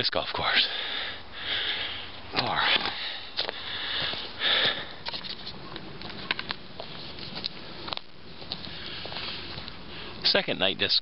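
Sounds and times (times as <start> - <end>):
light clicks and rustles: 2.3 - 9.8.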